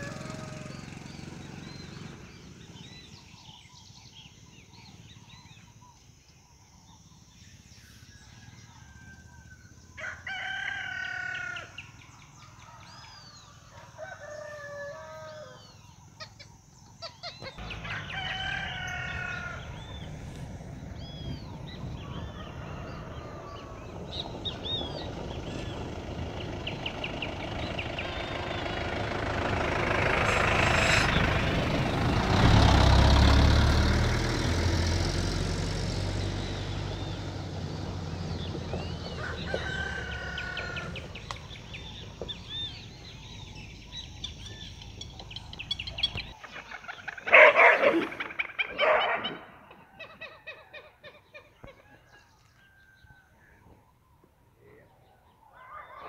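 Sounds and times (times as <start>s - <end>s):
rooster crowing: 0.0s - 1.2s, 8.2s - 11.8s, 12.6s - 15.8s, 17.6s - 20.2s, 22.0s - 24.2s, 38.7s - 41.3s, 51.6s - 53.5s
small birds chirping: 0.0s - 10.1s, 11.2s - 32.4s, 36.2s - 56.0s
rushing noise with low rumble: 17.6s - 34.2s.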